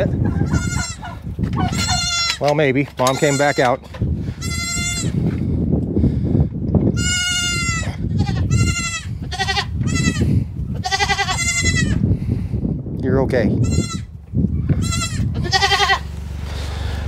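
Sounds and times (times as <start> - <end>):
goats bleating: 0.3 - 5.2, 7.0 - 12.0, 13.6 - 14.1, 14.7 - 16.1.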